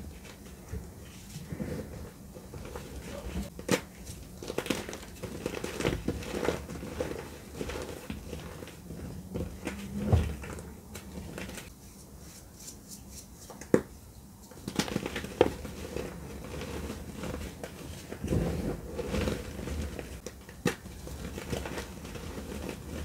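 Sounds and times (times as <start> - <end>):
sharp cracks of chalk: 11.6 - 15.6.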